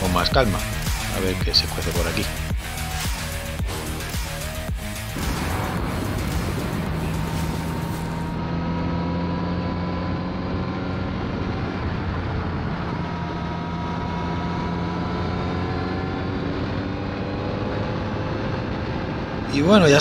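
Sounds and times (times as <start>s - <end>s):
motorcycle engine running: 0.0s - 19.5s
wind rush: 5.1s - 8.4s, 10.3s - 14.2s, 18.0s - 20.0s.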